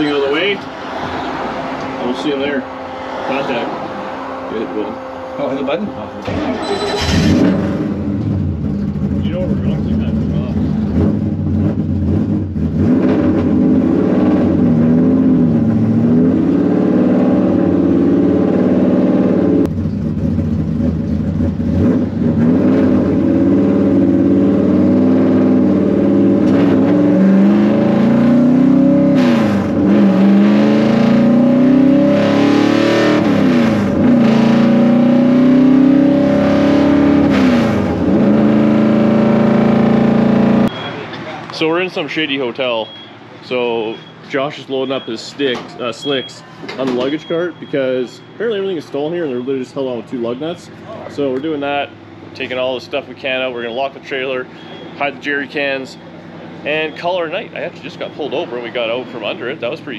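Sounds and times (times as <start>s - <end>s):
vehicle engine revving: 0.0s - 40.8s.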